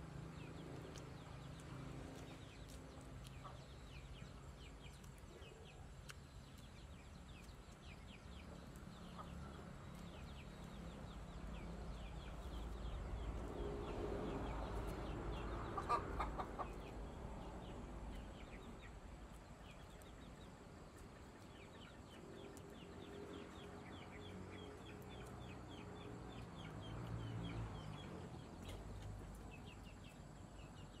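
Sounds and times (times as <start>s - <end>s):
chickens clucking: 0.8s - 11.2s, 11.9s - 17.5s.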